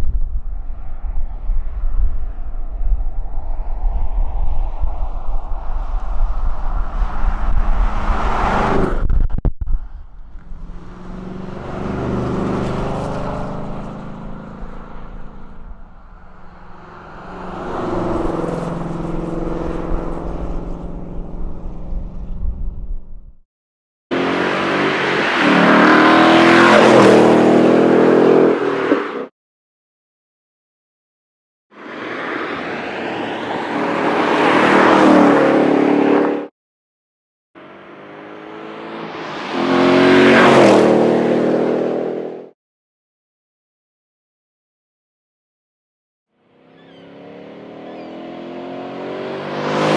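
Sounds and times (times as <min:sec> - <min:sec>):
car engine and exhaust: 0:00.0 - 0:23.4, 0:24.1 - 0:29.3, 0:37.6 - 0:42.5, 0:46.4 - 0:49.9
car engine driving by: 0:09.8 - 0:22.4.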